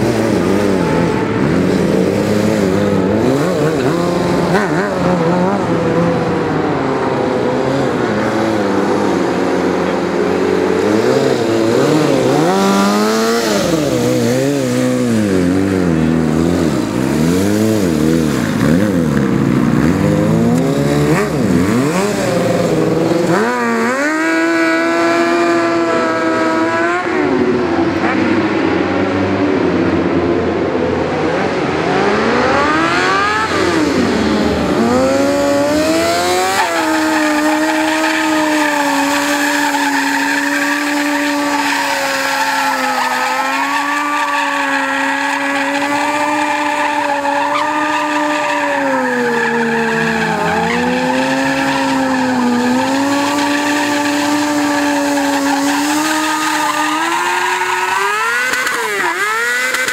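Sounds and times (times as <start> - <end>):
motorcycle engine revving: 0.0 - 59.9
tyre squeal: 36.4 - 59.9.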